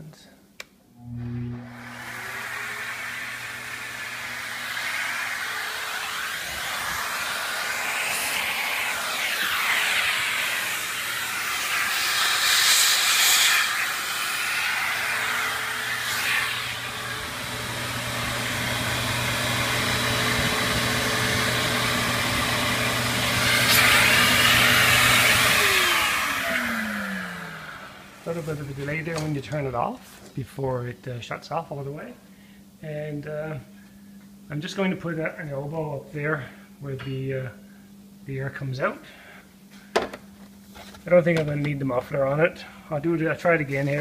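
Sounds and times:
vacuum motor hum: 0.9 - 29.9
motor winding down: 1.0 - 28.2
air hiss: 1.8 - 17.0.

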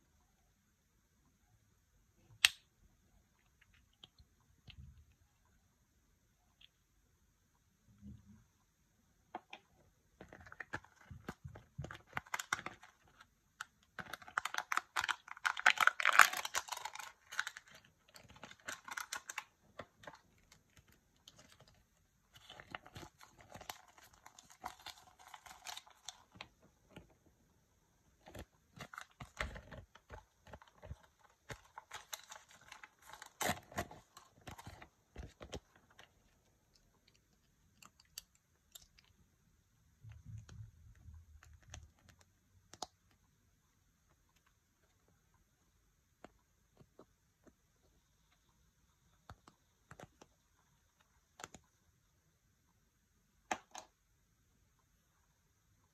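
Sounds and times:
foil seal crinkling: 10.3 - 13.3, 14.0 - 21.8, 22.4 - 26.5, 28.2 - 36.1.

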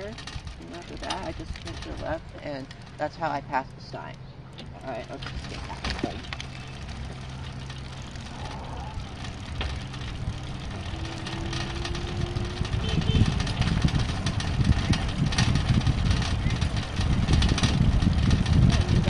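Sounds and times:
electric bike motor hum: 0.0 - 19.0
light clicks and rattles: 0.0 - 19.0
wind rumble on microphone: 4.9 - 19.0.

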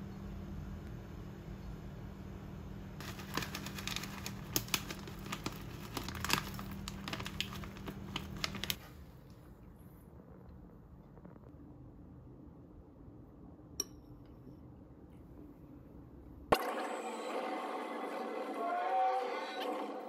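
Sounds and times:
plastic pouch crinkling: 3.0 - 8.8.

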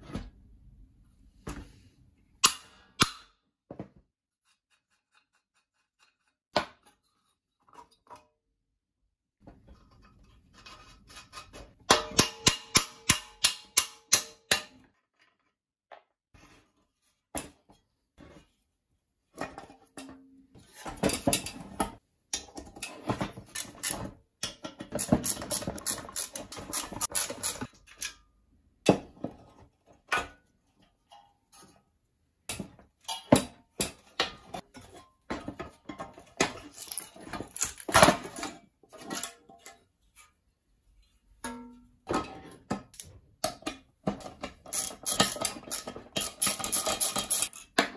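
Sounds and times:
metal tools knocking and clinking: 35.4 - 39.4, 43.4 - 47.9.

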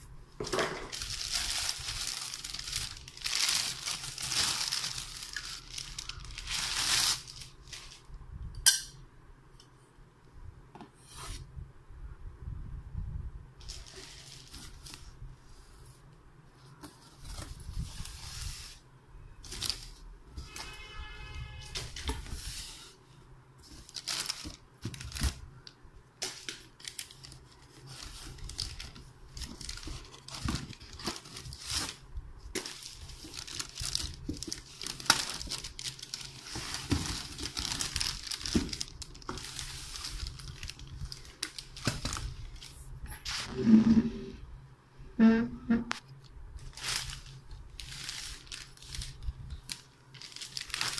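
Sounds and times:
plastic wrapping crinkling: 0.4 - 8.1, 13.6 - 15.2, 19.4 - 20.8, 23.6 - 43.6, 46.6 - 50.9.

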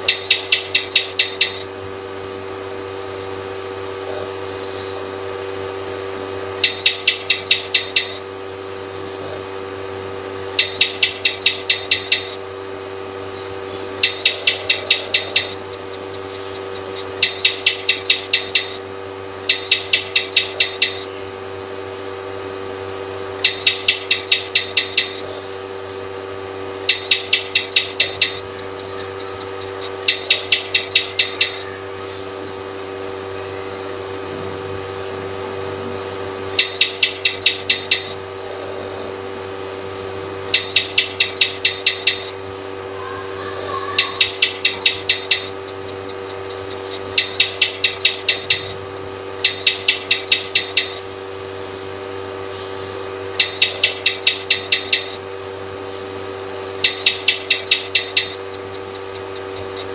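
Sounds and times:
lizard clicking chirps: 0.0 - 1.7, 6.6 - 8.3, 10.6 - 12.4, 14.0 - 18.8, 19.5 - 21.2, 23.4 - 25.3, 26.8 - 31.8, 36.4 - 38.2, 40.5 - 42.4, 43.9 - 48.8, 49.4 - 51.2, 52.6 - 55.2, 56.6 - 59.9
steady background hum: 0.0 - 59.9.

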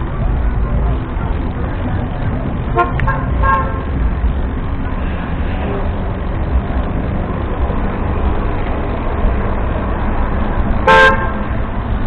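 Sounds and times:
traffic: 0.0 - 12.0
tyre-on-road noise: 0.0 - 12.0.

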